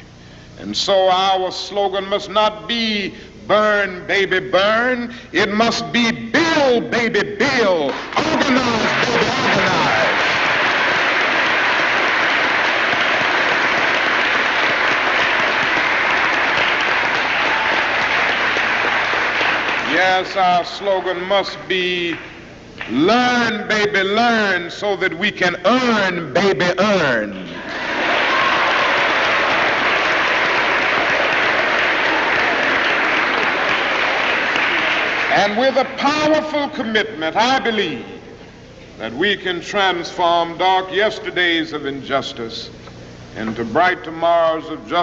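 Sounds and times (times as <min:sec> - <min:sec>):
audience applauding: 0:07.9 - 0:21.3, 0:27.3 - 0:36.0.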